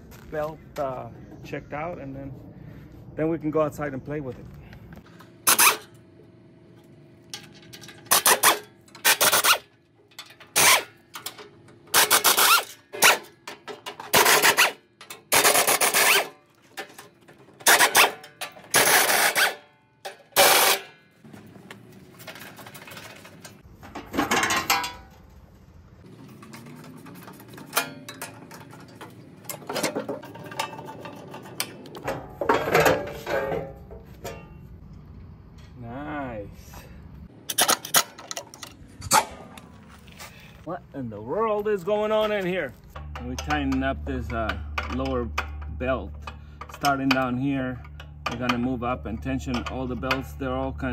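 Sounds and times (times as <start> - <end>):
pneumatic wrench bursts: 5.4 - 5.9, 8.1 - 9.7, 10.5 - 11.0, 11.9 - 13.3, 14.1 - 16.3, 17.6 - 19.6, 20.4 - 20.9.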